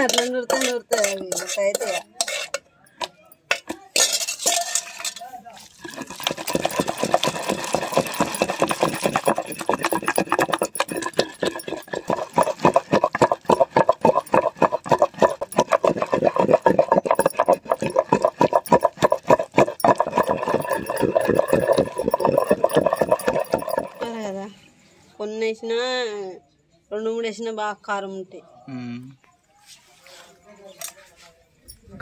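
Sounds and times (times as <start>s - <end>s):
wooden pestle pounding in stone mortar: 6.0s - 24.1s.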